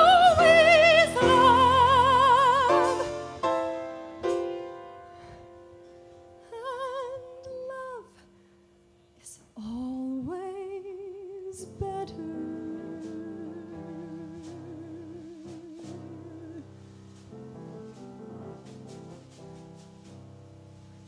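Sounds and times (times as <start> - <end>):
woman singing ballad: 0.0 - 3.4, 6.4 - 8.3, 9.2 - 16.7
piano accompaniment: 0.0 - 8.0, 11.6 - 21.0.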